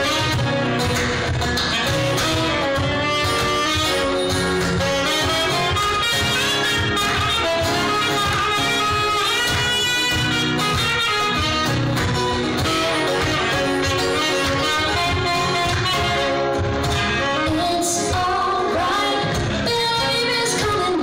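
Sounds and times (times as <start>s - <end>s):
saxophone melody: 0.0s - 20.9s
live band playing: 0.0s - 21.0s
woman singing: 17.3s - 21.0s.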